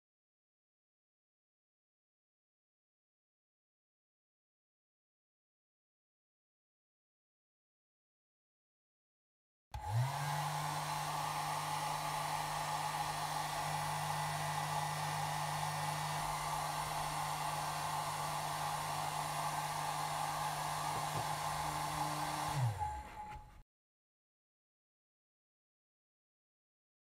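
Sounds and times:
hair dryer running: 9.8s - 23.6s.

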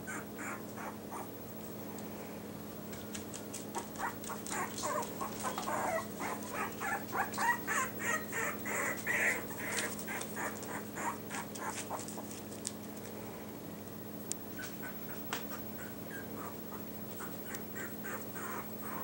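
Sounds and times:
puppies squeaking and whimpering: 0.0s - 1.3s, 3.8s - 12.3s, 14.5s - 19.0s.

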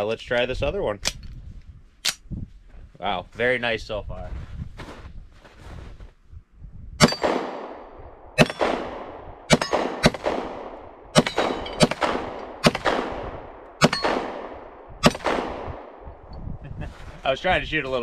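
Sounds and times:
pistol shots: 7.0s - 16.0s.

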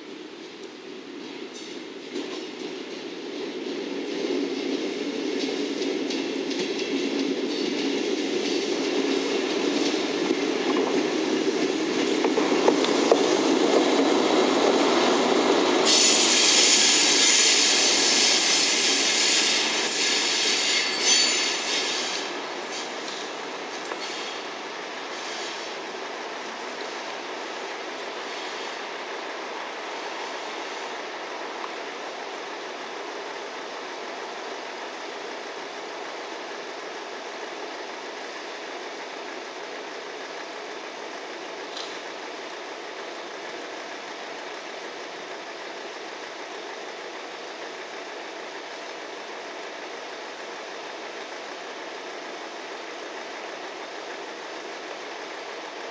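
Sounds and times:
train wheels on rails: 0.0s - 55.9s
high-pitched wheel squeals: 16.0s - 22.2s.

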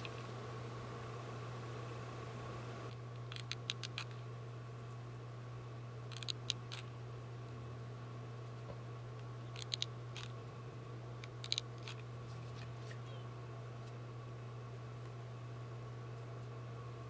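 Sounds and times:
steady low hum: 0.0s - 17.0s
small sharp clicks: 2.9s - 4.2s, 6.1s - 6.9s, 9.5s - 10.4s, 11.2s - 12.1s.

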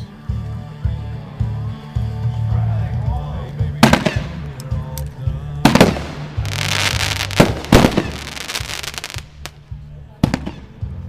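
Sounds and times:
background music: 0.0s - 11.0s
firework shot reports: 5.6s - 9.5s
firework hissing rush: 5.7s - 9.5s.

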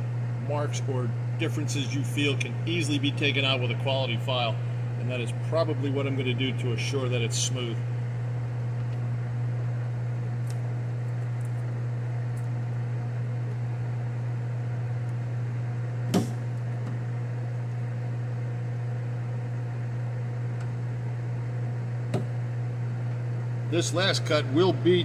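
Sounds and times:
electrical machine hum: 0.0s - 25.0s.

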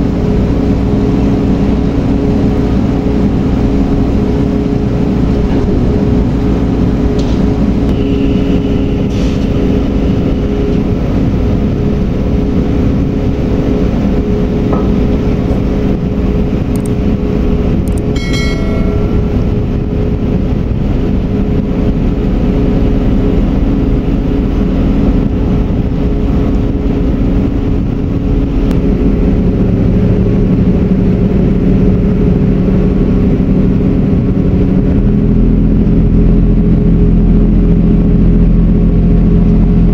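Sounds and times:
marine diesel engines droning: 0.0s - 39.9s
steady low tones: 0.0s - 39.9s
short high tone: 18.2s - 19.9s.

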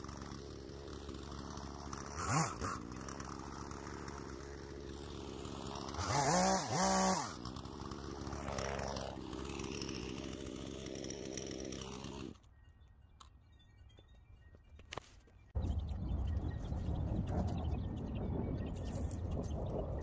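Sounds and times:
chainsaw idling: 0.0s - 12.5s
chainsaw revving: 0.0s - 12.5s.

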